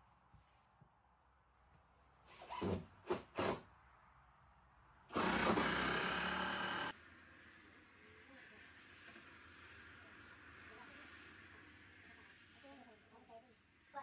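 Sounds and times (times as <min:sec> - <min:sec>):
cordless drill running: 0:05.1 - 0:06.9.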